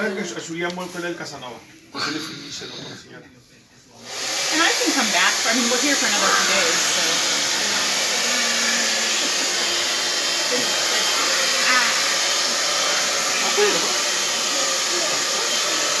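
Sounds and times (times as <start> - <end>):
faint voices: 0.0 - 16.0
electric blower rushing air: 4.1 - 16.0.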